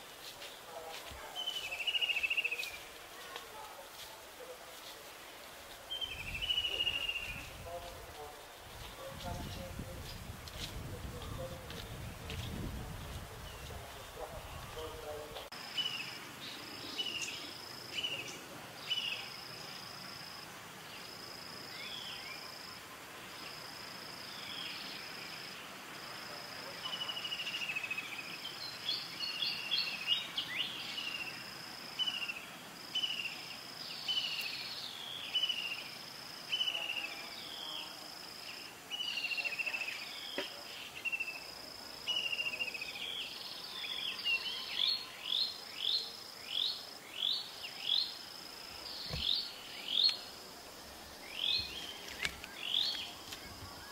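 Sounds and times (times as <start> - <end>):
high falling insect chirps: 46.4 - 53.9.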